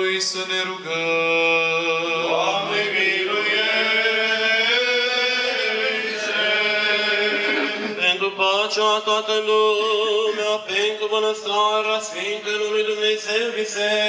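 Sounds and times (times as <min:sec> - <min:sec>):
men chanting melody: 0:02.1 - 0:08.2.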